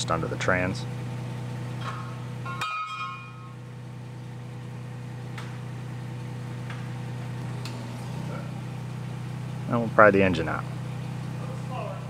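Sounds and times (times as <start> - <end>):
forklift engine idling: 0.0 - 12.0
short metallic ring: 1.8 - 3.6.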